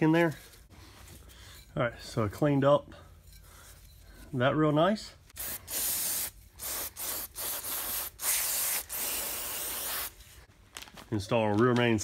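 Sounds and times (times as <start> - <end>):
aerosol spray can hissing: 5.4 - 10.1.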